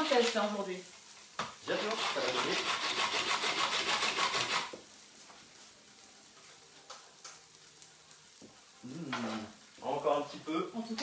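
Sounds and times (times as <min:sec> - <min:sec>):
rasping scrape on counter: 0:01.7 - 0:04.8.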